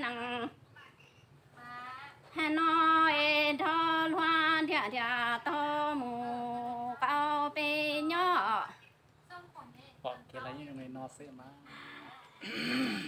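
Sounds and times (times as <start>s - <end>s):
woman singing unaccompanied: 0.0s - 0.6s, 1.6s - 9.0s.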